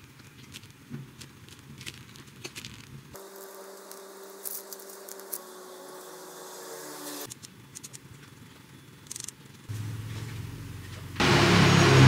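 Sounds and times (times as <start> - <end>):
piping bag squishing: 0.0 - 5.5
steady low hum: 3.2 - 12.0.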